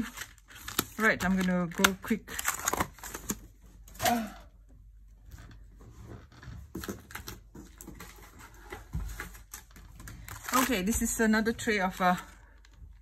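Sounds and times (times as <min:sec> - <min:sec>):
plastic clicks and rustles: 0:00.0 - 0:03.6.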